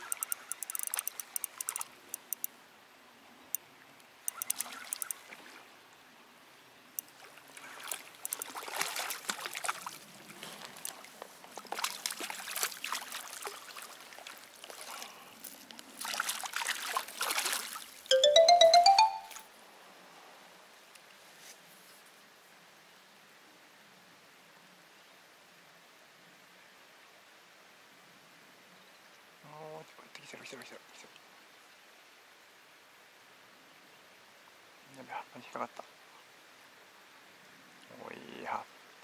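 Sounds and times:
water trickling and splashing: 0.0 - 2.6, 3.3 - 18.1.

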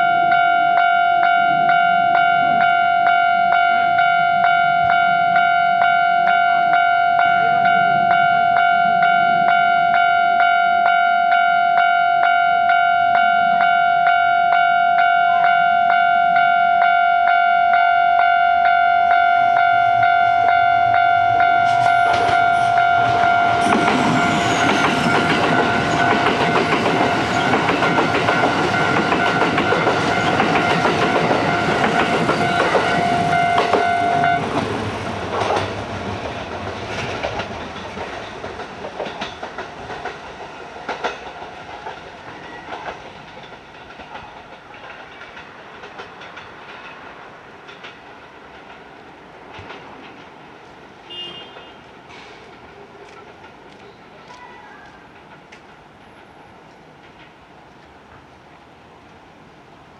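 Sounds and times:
level-crossing warning bell: 0.0 - 34.6
electric train passing: 0.0 - 51.2, 51.8 - 59.9
wheels clicking over rail joints: 21.4 - 50.8, 51.6 - 58.3.

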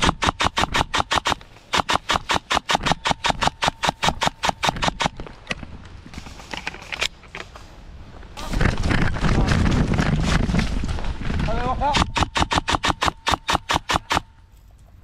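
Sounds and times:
airsoft gun rapid firing: 0.0 - 5.2, 11.9 - 14.3.

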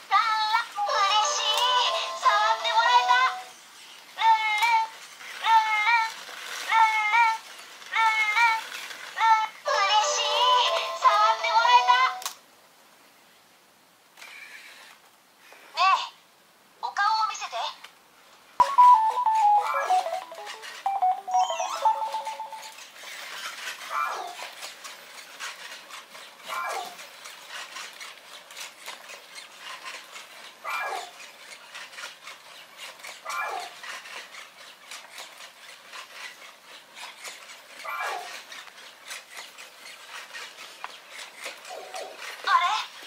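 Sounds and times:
robot dog falling tone melody: 18.6 - 22.8
robot whimper-like chirps: 18.6 - 22.8.

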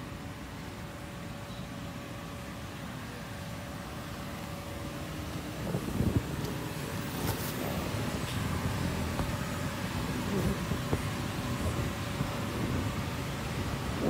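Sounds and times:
air blower rumbling: 3.2 - 14.0.

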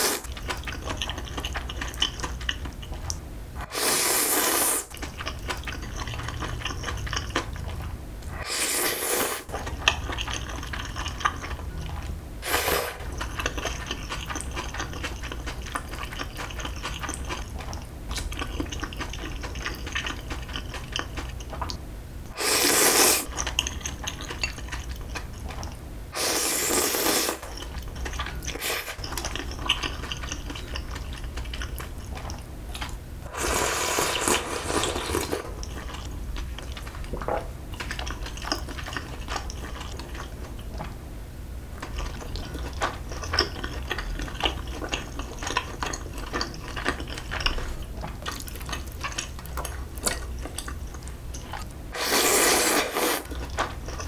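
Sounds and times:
chewing: 0.0 - 3.2, 4.8 - 8.4, 9.4 - 21.8, 22.8 - 25.8, 26.7 - 41.0, 41.8 - 54.0
noodles slurped loudly: 3.7 - 4.9, 22.4 - 23.3, 52.0 - 53.4.

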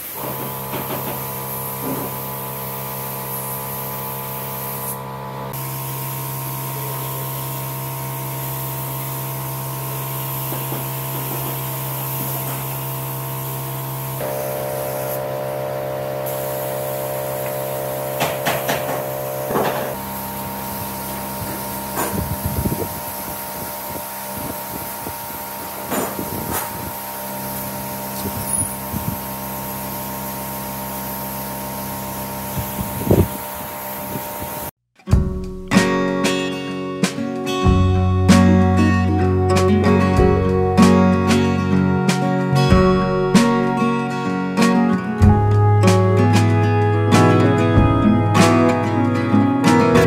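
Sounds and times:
spray gun hissing: 0.0 - 34.7
steady machine hum: 0.0 - 34.7, 37.7 - 50.0.

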